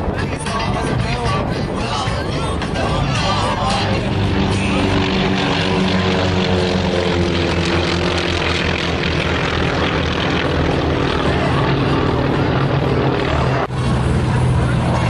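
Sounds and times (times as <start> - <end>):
propeller plane engines droning: 0.0 - 15.0.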